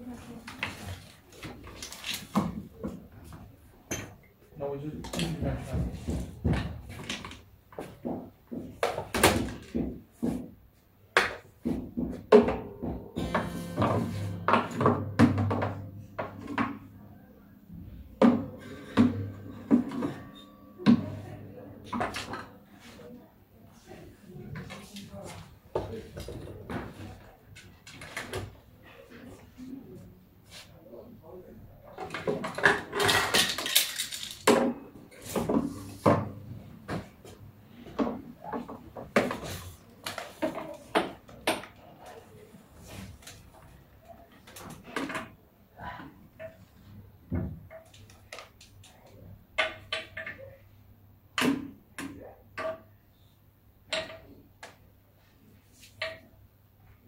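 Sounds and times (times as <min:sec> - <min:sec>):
objects knocking and clattering: 0:05.0 - 0:10.6, 0:11.2 - 0:22.7, 0:31.9 - 0:41.8
objects rattling and clattering: 0:11.6 - 0:17.1, 0:31.9 - 0:35.8
objects knocking and clinking: 0:12.0 - 0:17.0
acoustic guitar low strings ringing: 0:13.2 - 0:22.0.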